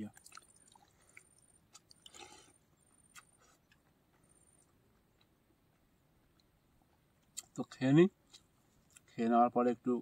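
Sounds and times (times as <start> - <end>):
mouth clicks while eating: 0.1 - 2.4, 3.0 - 3.8.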